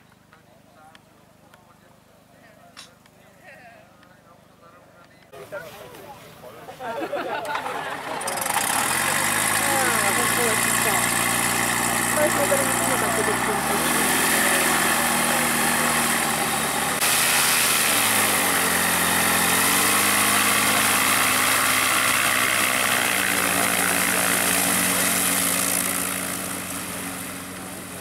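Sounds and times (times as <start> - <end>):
propeller aircraft engine running: 7.0 - 28.0.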